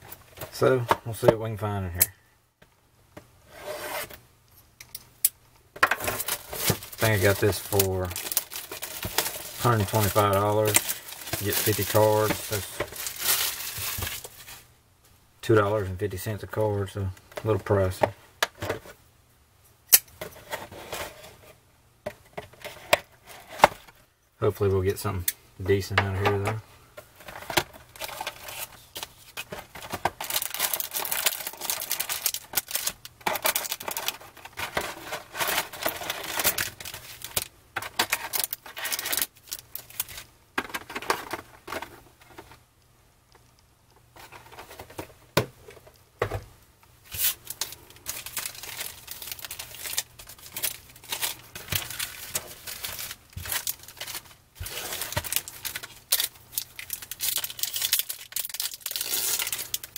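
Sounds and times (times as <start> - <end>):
foil card packs crinkling: 5.9 - 14.7, 25.7 - 42.5, 47.1 - 59.9
packaging tearing and rustling: 6.0 - 14.6, 27.3 - 40.3, 47.1 - 59.9.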